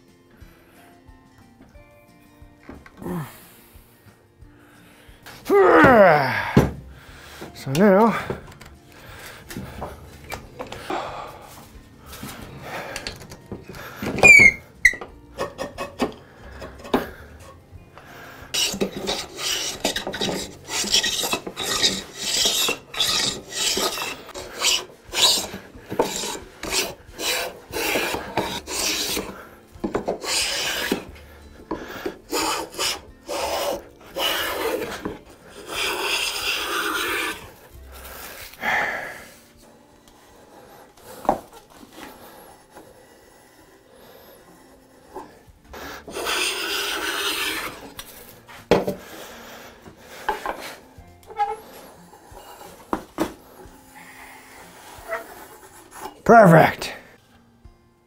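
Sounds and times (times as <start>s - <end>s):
hand plane cutting wood: 12.2s - 17.5s, 18.4s - 38.6s, 40.2s - 53.6s, 54.4s - 56.2s
clamp squeak: 14.1s - 15.1s, 18.6s - 29.3s, 51.3s - 51.6s.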